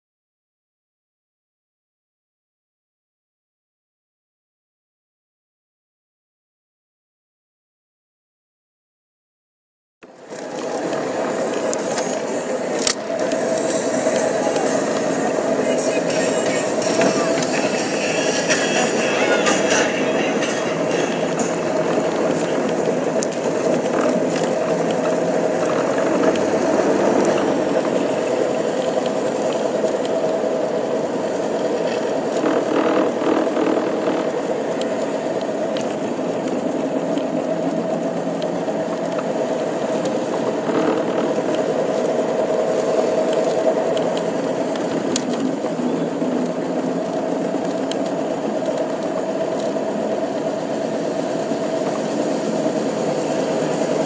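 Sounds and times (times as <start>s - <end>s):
car engine running: 10.0s - 54.0s
car body rattling and clicking: 42.8s - 50.6s.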